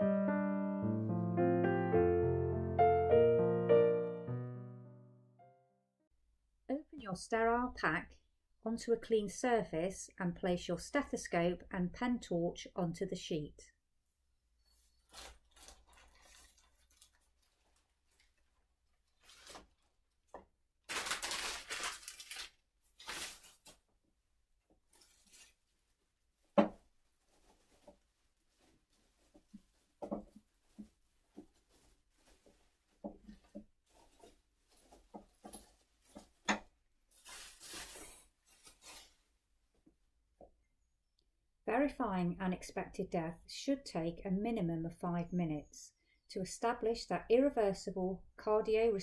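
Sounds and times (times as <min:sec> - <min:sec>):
paper and plastic wrapping crinkling: 0:14.7 - 0:23.9, 0:24.8 - 0:39.3
soft knocks and taps: 0:26.5 - 0:26.8, 0:29.3 - 0:31.6.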